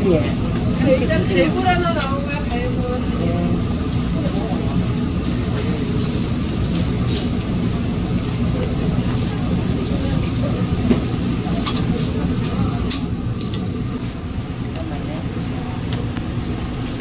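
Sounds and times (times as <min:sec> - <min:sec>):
street background rumble: 0:00.0 - 0:17.0
metal tongs clicking on grill: 0:01.9 - 0:02.8, 0:11.6 - 0:13.8.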